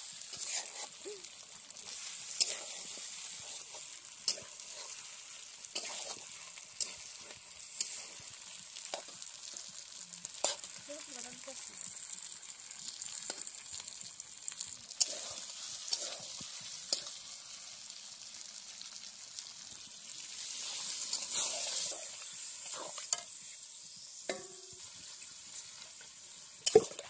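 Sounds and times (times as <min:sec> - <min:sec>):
liquid poured into hot pan: 0:00.0 - 0:23.5
curry sizzling in a pan: 0:00.0 - 0:27.0
metal spatula scraping a pan: 0:00.2 - 0:01.0, 0:01.7 - 0:10.8, 0:15.0 - 0:17.2, 0:20.4 - 0:23.4.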